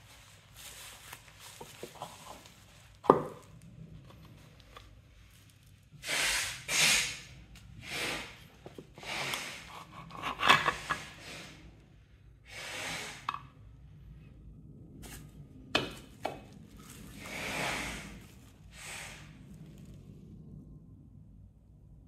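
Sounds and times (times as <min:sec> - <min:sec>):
rustling on bubble wrap: 0:00.0 - 0:06.7, 0:15.0 - 0:20.3.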